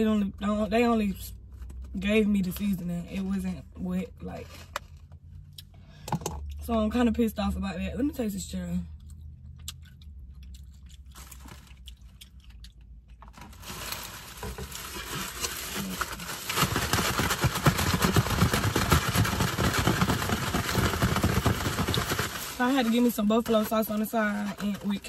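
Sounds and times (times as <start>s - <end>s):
paper wrapper crinkling: 11.1s - 11.9s, 13.2s - 25.0s
plastic container handled: 13.2s - 25.0s.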